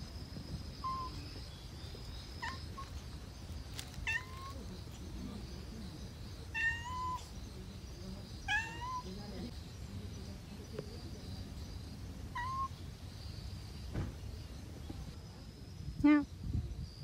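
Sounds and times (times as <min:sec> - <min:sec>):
cat meowing: 0:04.0 - 0:04.6, 0:06.5 - 0:07.3, 0:08.5 - 0:09.1, 0:12.3 - 0:12.7.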